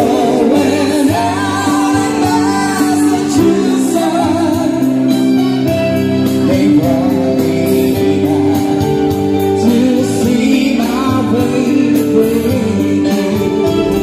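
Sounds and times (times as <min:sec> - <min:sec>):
electric guitar: 0:00.0 - 0:14.0
keyboard: 0:00.0 - 0:14.0
person singing: 0:00.0 - 0:14.0.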